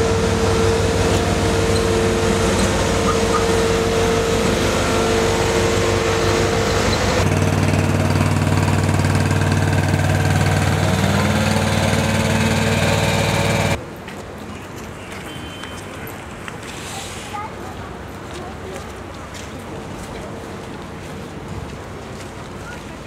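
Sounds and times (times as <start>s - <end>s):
heavy vehicle engine humming: 0.0s - 13.8s.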